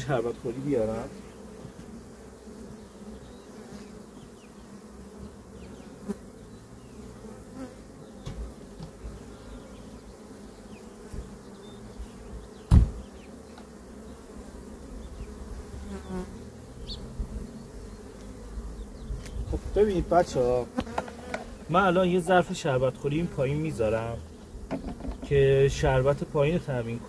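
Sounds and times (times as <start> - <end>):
honey bees buzzing: 0.0 - 27.0
loud knock: 12.7 - 13.0.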